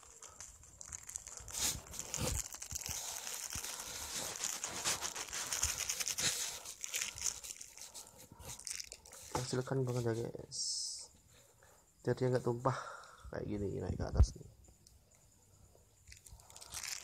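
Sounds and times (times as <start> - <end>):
plastic sachet crinkling: 0.0 - 10.0, 16.0 - 17.0.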